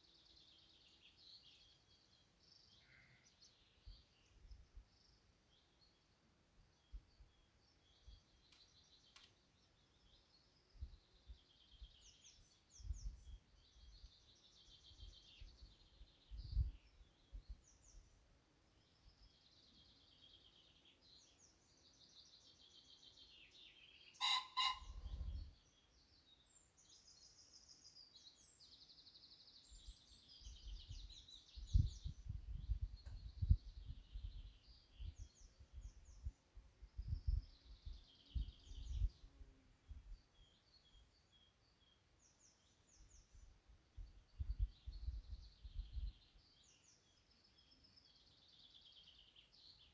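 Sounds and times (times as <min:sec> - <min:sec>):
birds singing and chirping: 0:06.7 - 0:18.2, 0:18.8 - 0:49.9
loud brief bird call: 0:24.2 - 0:25.3.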